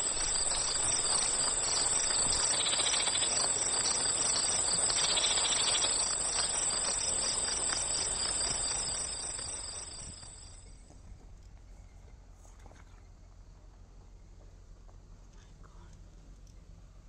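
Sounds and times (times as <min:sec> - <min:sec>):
insects buzzing: 0:00.0 - 0:10.7.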